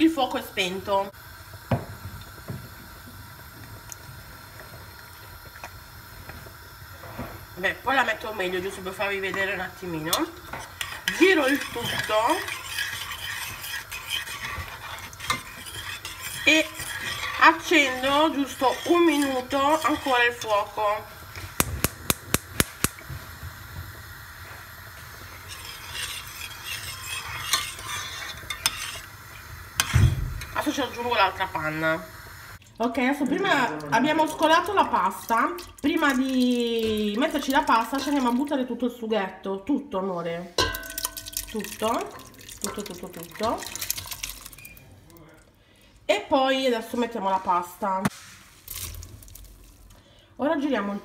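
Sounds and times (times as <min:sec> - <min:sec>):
gas flame hissing: 0:00.0 - 0:32.6
low kitchen rumble: 0:00.2 - 0:38.4
spoon stirring in steel pot: 0:08.0 - 0:23.0, 0:24.9 - 0:31.8, 0:40.6 - 0:44.8
gas igniter clicking: 0:21.6 - 0:23.0.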